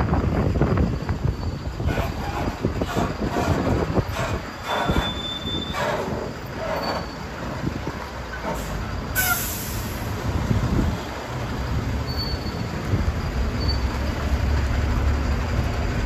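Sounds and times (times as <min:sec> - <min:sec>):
thin high squeals: 0:01.2 - 0:07.4, 0:12.0 - 0:13.9
loud hiss: 0:09.2 - 0:10.3.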